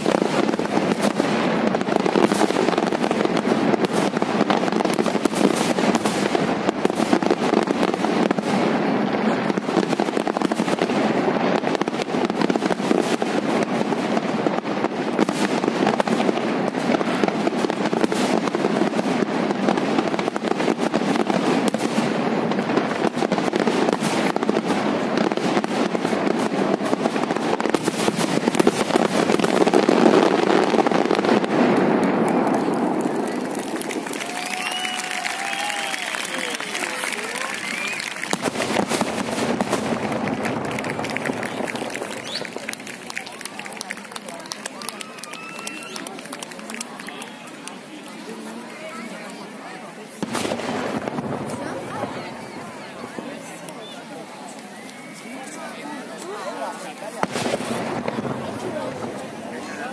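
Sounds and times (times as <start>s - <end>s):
fireworks bursting and crackling: 0.0s - 59.9s.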